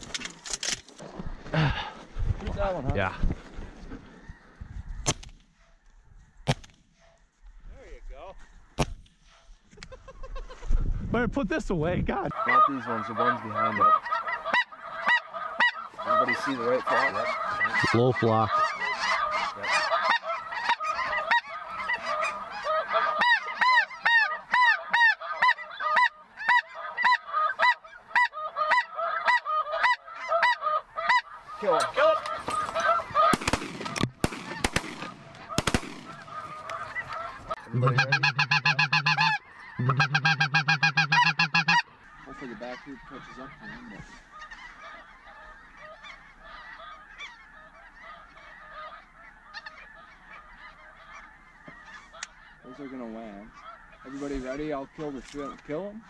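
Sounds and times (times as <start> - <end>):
geese honking: 12.1 - 56.0
shotgun shots: 33.3 - 36.3.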